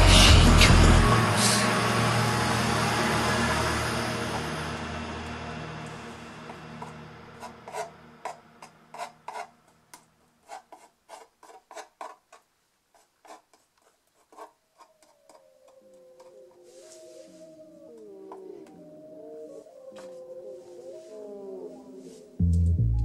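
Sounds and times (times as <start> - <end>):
music: 0.0 - 8.4, 22.4 - 23.0
gliding tones: 0.0 - 9.4
painting knife scraping paint: 6.8 - 15.5.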